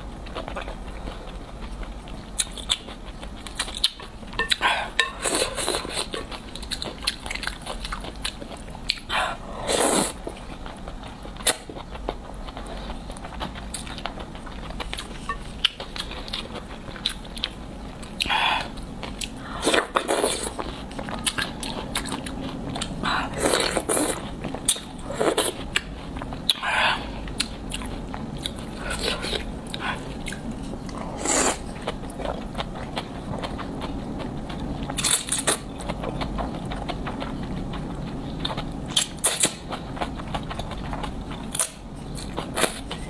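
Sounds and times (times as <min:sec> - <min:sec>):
chewing and mouth clicks: 0:00.2 - 0:43.0
slurping noodles: 0:09.3 - 0:10.3, 0:23.2 - 0:25.6, 0:31.0 - 0:31.7.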